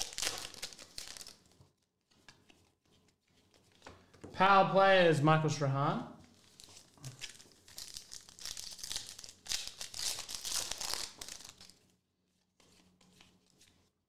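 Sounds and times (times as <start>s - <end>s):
foil wrapper crinkling and tearing: 0.0s - 1.6s, 6.4s - 11.9s.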